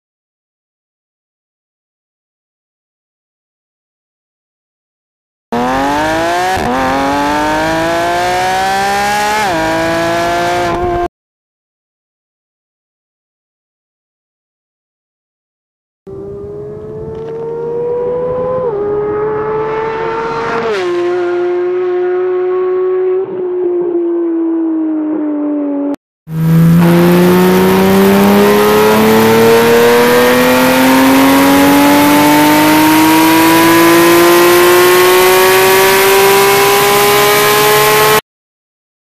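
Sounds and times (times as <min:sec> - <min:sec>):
sports car engine revving: 0:05.6 - 0:11.1, 0:16.1 - 0:38.2.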